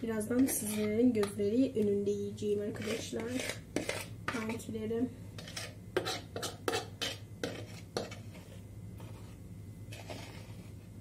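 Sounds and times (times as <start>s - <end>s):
metal fork scraping a frying pan: 2.7s - 4.1s, 5.4s - 9.3s, 9.9s - 10.7s.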